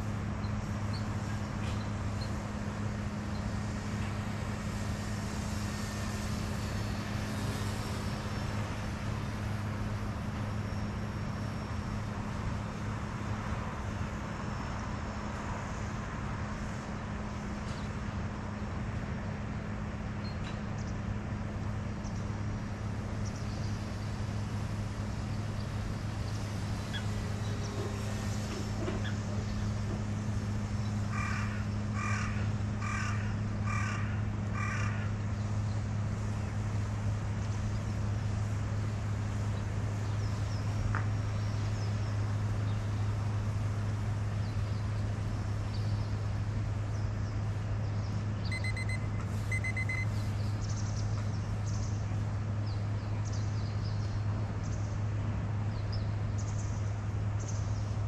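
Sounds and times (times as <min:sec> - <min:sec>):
steady low hum: 0:00.0 - 0:58.0
crow cawing: 0:31.1 - 0:35.1.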